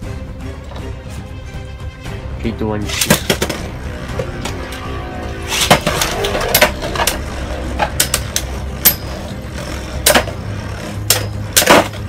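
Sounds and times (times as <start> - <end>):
low hum: 3.3 - 12.0
spinning tops whirring: 5.4 - 12.0.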